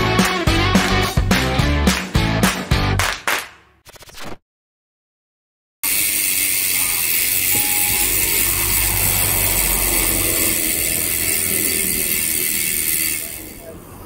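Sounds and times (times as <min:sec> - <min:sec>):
low road rumble: 0:07.2 - 0:14.0.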